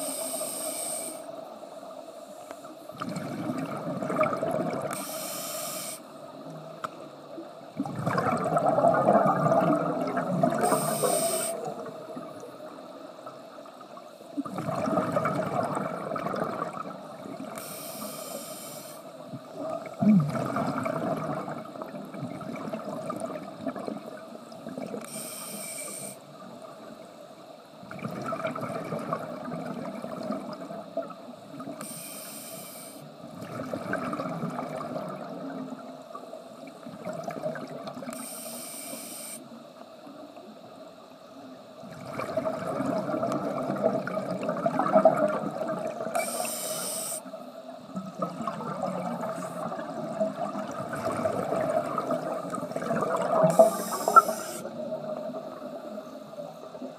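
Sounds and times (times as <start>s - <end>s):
hissing regulator inhalations: 0.0s - 1.4s, 4.9s - 6.2s, 10.6s - 11.7s, 17.5s - 19.2s, 25.0s - 26.2s, 31.8s - 33.1s, 38.1s - 39.5s, 46.1s - 47.4s, 53.4s - 54.7s
exhaled bubbles rushing: 2.9s - 5.0s, 7.8s - 10.8s, 14.4s - 17.6s, 19.5s - 25.0s, 27.9s - 31.1s, 33.4s - 35.8s, 36.8s - 38.0s, 41.8s - 46.1s, 48.0s - 55.7s.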